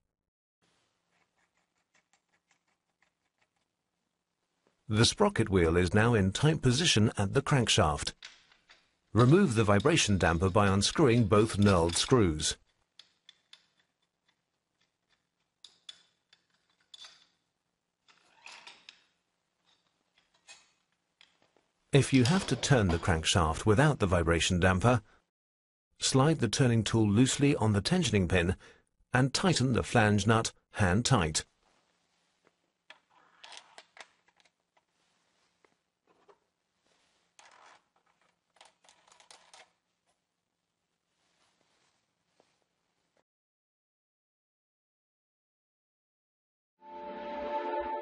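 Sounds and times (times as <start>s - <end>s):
metal tool clicks and scrapes: 8.1s - 17.4s
rustling: 31.5s - 40.3s, 40.9s - 43.2s.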